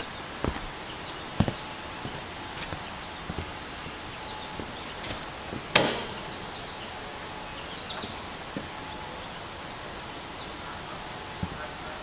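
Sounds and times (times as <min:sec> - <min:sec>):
mower deck clunk: 0:05.0 - 0:06.6
faint bird chirps: 0:06.2 - 0:12.0.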